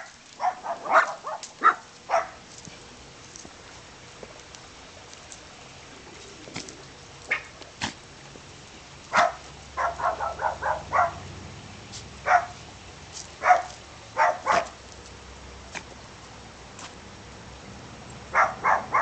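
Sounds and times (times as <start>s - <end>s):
small dog yapping: 0.0s - 2.4s, 7.3s - 8.0s, 9.1s - 11.2s, 13.4s - 14.8s.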